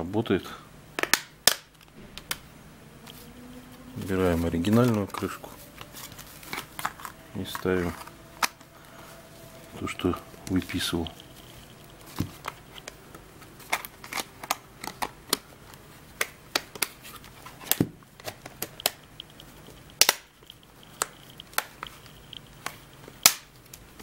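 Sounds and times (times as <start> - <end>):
plastic clips snapping: 20.0 - 22.0, 22.6 - 23.8.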